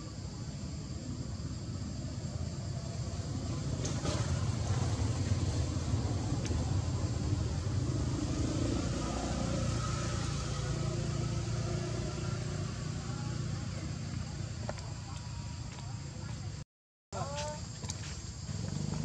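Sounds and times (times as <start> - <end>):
low motor rumble: 0.0 - 16.6, 17.2 - 19.0.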